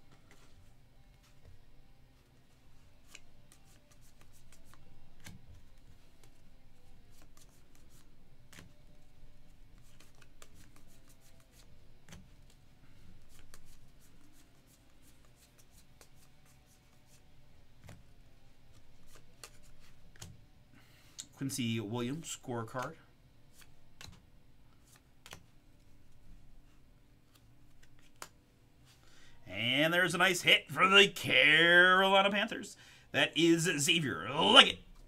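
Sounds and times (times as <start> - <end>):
trading cards flipped by hand: 3.0 - 6.4, 7.1 - 8.8, 9.8 - 12.6, 13.2 - 17.2, 18.7 - 20.4, 23.5 - 26.2, 27.2 - 28.4.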